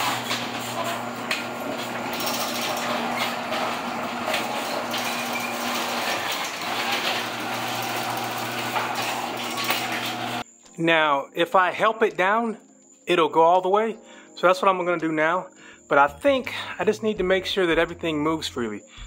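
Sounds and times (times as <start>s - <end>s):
door rollers rattling and clicking: 0.0s - 10.4s
garage door motor hum: 0.0s - 10.4s.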